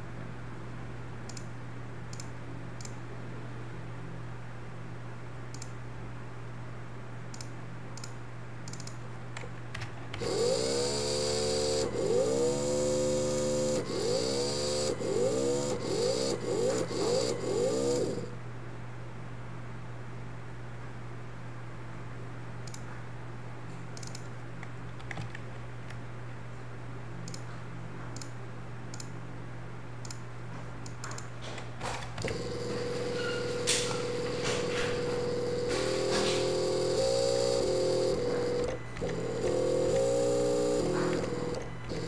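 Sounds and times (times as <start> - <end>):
faint clicks: 7.3 - 10.3
electric motor whine: 10.2 - 18.4, 32.2 - 42.0.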